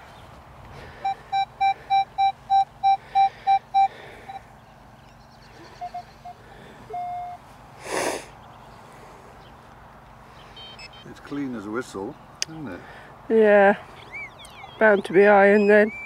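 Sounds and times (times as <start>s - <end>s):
metal detector beeping: 1.0s - 4.4s, 5.8s - 7.4s, 10.6s - 11.1s, 15.4s - 16.0s.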